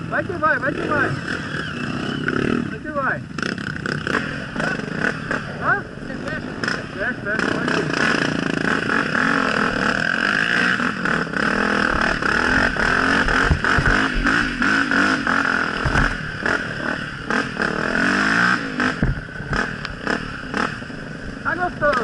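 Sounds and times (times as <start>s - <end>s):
dirt bike engine revving: 0.0s - 22.0s
bike bouncing clatter: 11.6s - 16.6s.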